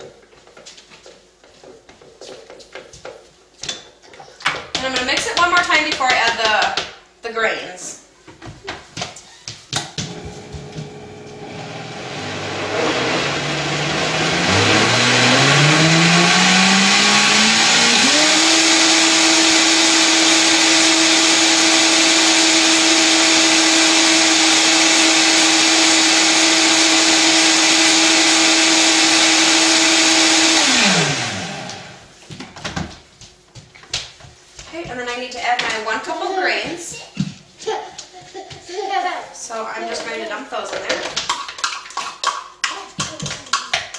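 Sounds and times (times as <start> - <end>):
blender motor whining: 10.0 - 32.1.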